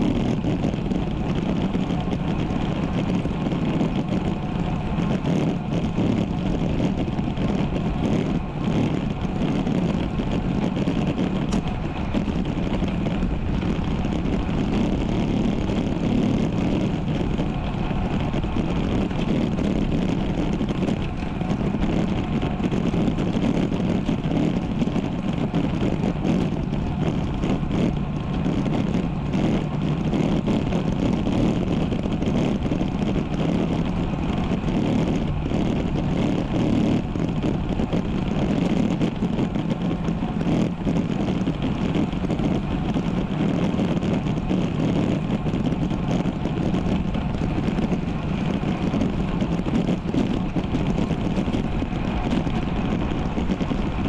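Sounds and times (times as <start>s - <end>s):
bike rolling noise: 0.0s - 54.0s
wind rushing on microphone: 0.0s - 54.0s.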